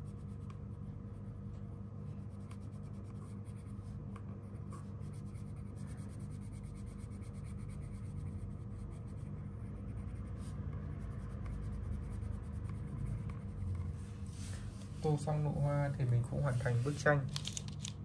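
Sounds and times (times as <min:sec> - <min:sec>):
steady low hum: 0:00.0 - 0:18.0
crayon rubbing on paper: 0:04.6 - 0:13.7.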